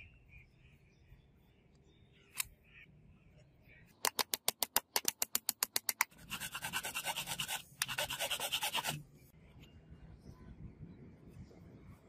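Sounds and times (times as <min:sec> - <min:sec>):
file rasping: 0:06.2 - 0:09.0.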